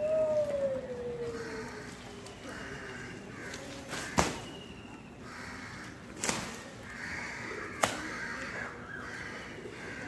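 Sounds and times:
crows cawing: 1.2 - 4.2, 5.2 - 6.2, 6.8 - 10.0
sharp snaps: 7.8 - 8.1.

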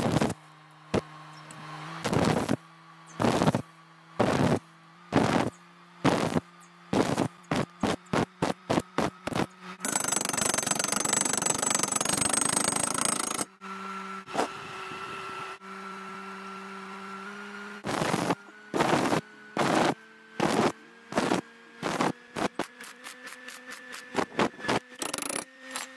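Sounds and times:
steady hum: 0.0 - 13.6
welding arc crackling: 2.0 - 2.6, 3.2 - 3.6, 4.2 - 12.0.

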